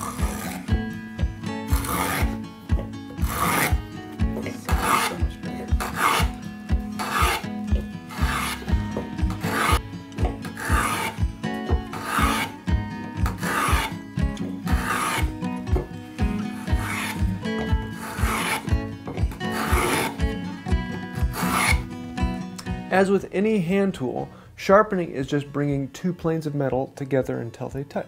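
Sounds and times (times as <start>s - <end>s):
wooden plane rasping on board: 0.0s - 0.8s, 1.7s - 2.4s, 3.2s - 6.4s, 7.0s - 12.6s, 13.2s - 21.9s.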